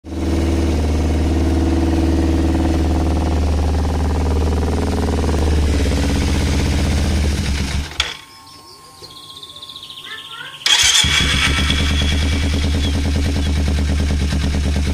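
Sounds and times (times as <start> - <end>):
motorcycle engine idling: 0.1 - 8.1, 10.6 - 14.9
faint steady tone: 7.9 - 10.7.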